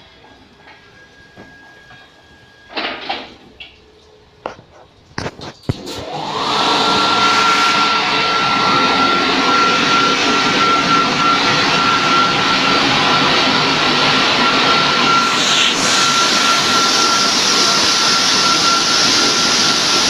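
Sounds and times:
car wash motor rushing whine: 5.4 - 20.0.

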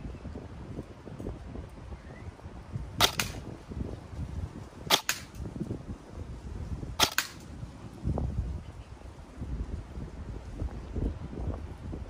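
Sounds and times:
airsoft gun shots: 3.0 - 3.4, 4.9 - 5.4, 7.0 - 7.4.

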